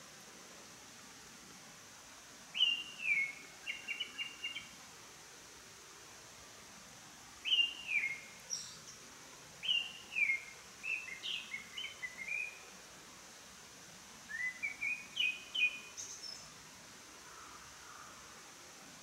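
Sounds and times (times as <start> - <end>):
steady background hiss: 0.0 - 19.0
songbird singing whistled notes: 2.5 - 4.8, 7.4 - 9.0, 9.6 - 12.7, 14.3 - 16.5.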